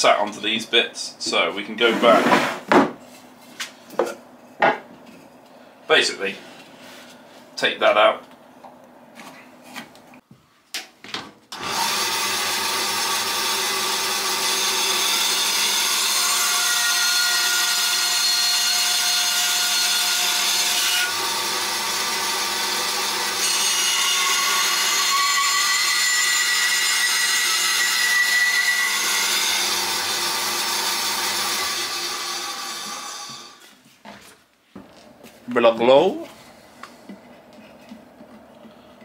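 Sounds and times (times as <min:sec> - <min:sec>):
bandsaw cutting wood: 0:11.5 - 0:33.6.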